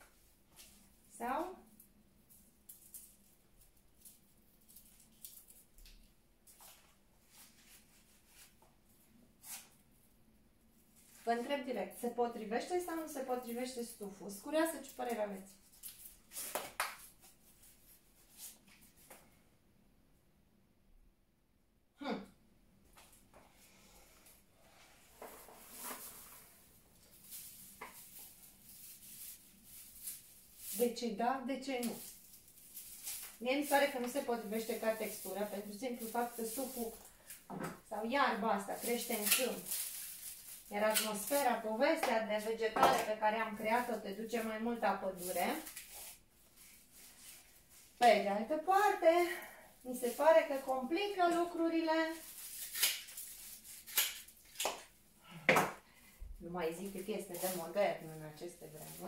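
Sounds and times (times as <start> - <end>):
dried reed stems rustling: 0.2 - 9.8, 11.0 - 19.2, 23.0 - 42.6, 43.3 - 54.7, 56.6 - 59.0
reed stems rustling and tapping: 2.2 - 6.9, 25.2 - 31.0, 31.6 - 42.2, 56.8 - 59.0.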